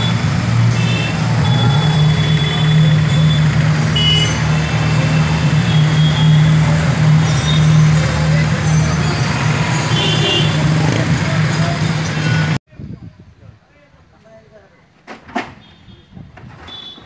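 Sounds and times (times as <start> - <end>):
traffic engine drone: 0.0 - 12.6.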